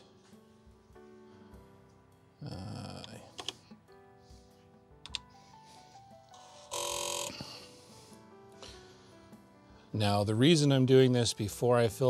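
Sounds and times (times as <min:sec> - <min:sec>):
faint background music: 0:00.0 - 0:12.0
keyboard key clicks: 0:03.4 - 0:03.6, 0:05.0 - 0:05.3.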